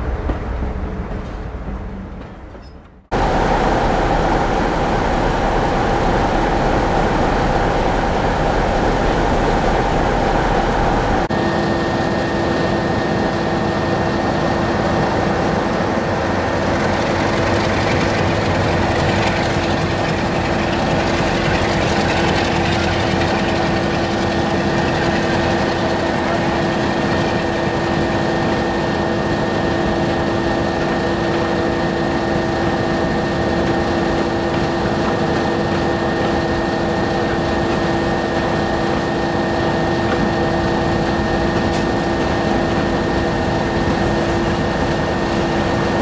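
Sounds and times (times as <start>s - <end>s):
diesel locomotive engine humming: 0.0s - 46.0s.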